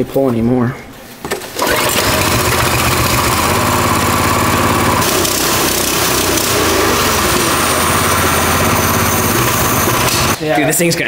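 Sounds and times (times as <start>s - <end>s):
small engine running: 1.6s - 10.4s.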